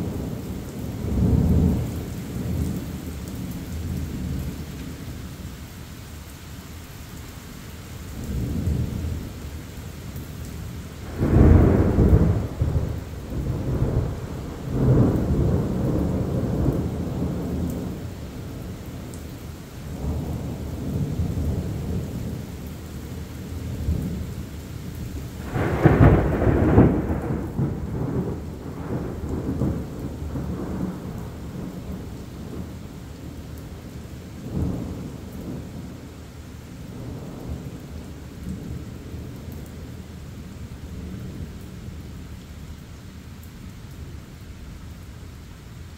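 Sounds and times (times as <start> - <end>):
steady rain: 0.0 - 45.9
thunder rumbling: 11.0 - 19.2, 19.9 - 24.4, 25.1 - 36.0.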